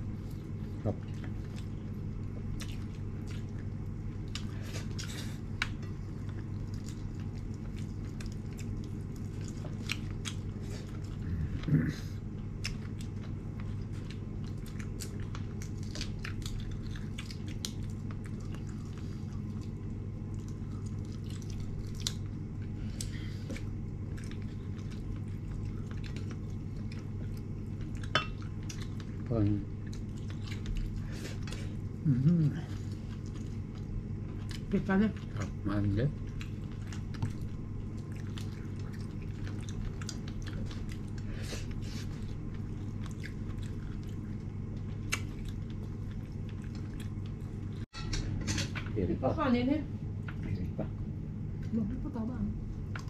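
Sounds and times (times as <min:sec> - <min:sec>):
steady low hum: 0:00.0 - 0:53.0
chewing clicks and crunches: 0:12.6 - 0:22.3, 0:36.2 - 0:41.2, 0:42.2 - 0:47.8.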